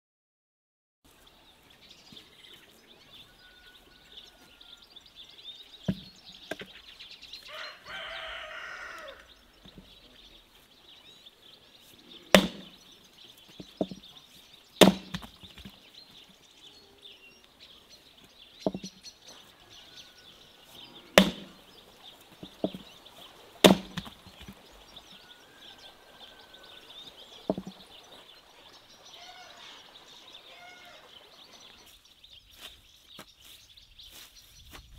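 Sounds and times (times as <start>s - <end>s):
rooster crowing: 3.0s - 5.0s, 7.4s - 9.4s, 19.3s - 21.2s, 25.0s - 27.2s, 29.1s - 31.2s
axe splitting firewood: 5.8s - 6.7s, 12.3s - 12.8s, 13.5s - 14.1s, 14.8s - 15.8s, 18.6s - 19.0s, 21.1s - 22.9s, 23.6s - 24.6s, 27.4s - 27.8s.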